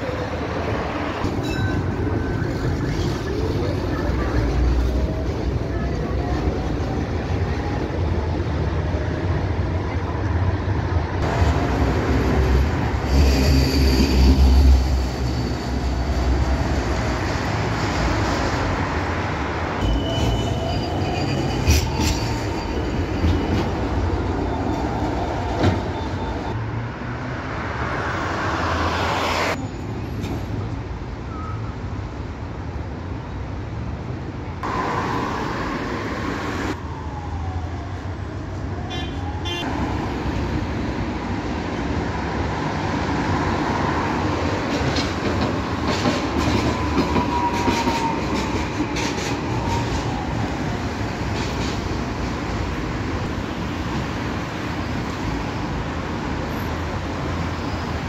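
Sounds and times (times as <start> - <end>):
tram wheels rumbling on rails: 0.0 - 58.0
high wheel squeals: 19.8 - 24.9.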